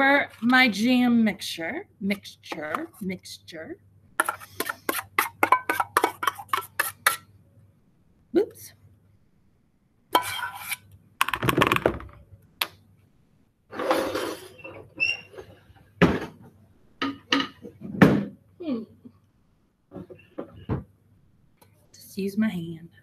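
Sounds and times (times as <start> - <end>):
metal spoon scraping and clinking: 4.2 - 7.2, 10.2 - 10.8.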